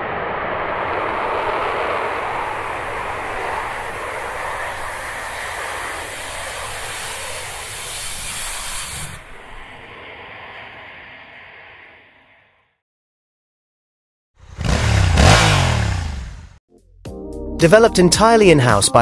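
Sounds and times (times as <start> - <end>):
rocket engine rushing hiss: 0.0 - 12.5.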